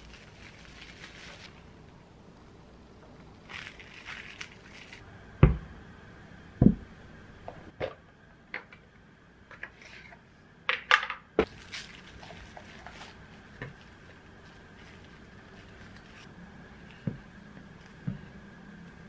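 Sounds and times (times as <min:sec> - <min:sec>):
paper wrapping rustling: 0:00.0 - 0:01.8, 0:03.4 - 0:05.0, 0:11.4 - 0:16.3.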